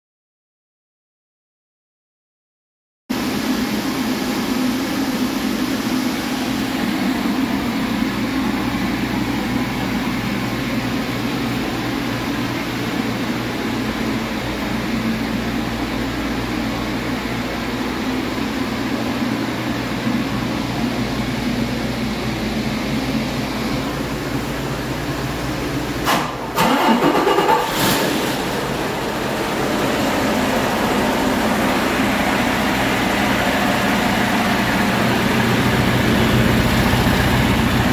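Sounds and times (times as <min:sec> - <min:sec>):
diesel engine running: 0:03.2 - 0:37.9
loud burst of noise: 0:23.3 - 0:37.9.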